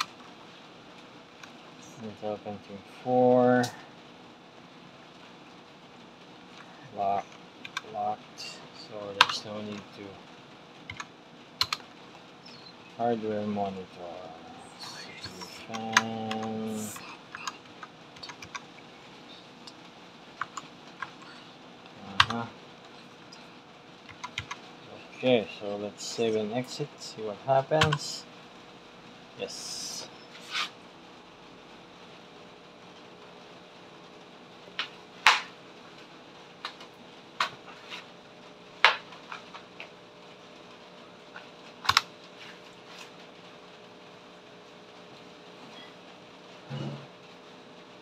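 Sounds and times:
faint steady hum: 0.0 - 48.0
keyboard keys clicking: 10.9 - 11.8, 17.3 - 18.6, 22.1 - 22.4, 24.1 - 24.6.

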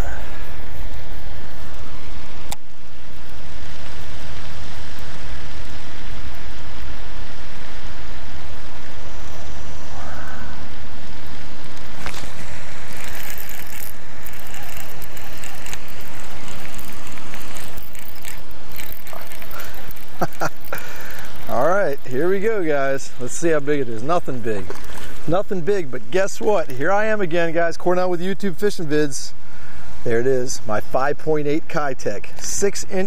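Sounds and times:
crackly high-pitched noise: 0.0 - 29.4
sharp click: 2.5 - 3.4
fishing reel winding: 12.0 - 22.7.

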